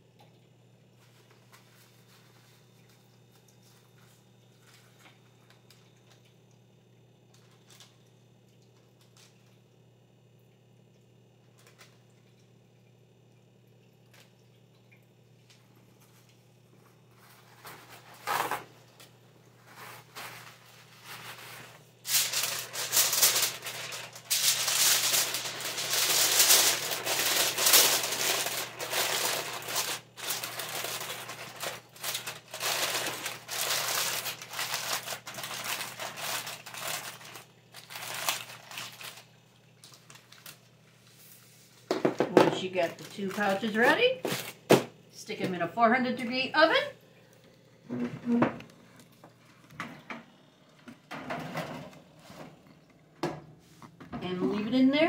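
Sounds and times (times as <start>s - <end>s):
aluminium foil crinkling: 7.3s - 8.1s, 16.9s - 41.1s, 42.5s - 44.7s.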